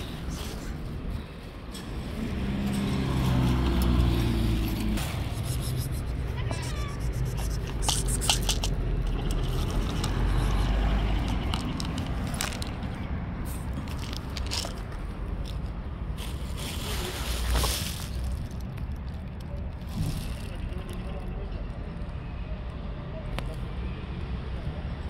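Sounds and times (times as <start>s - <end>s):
cat crunching dry kibble: 5.3s - 12.8s.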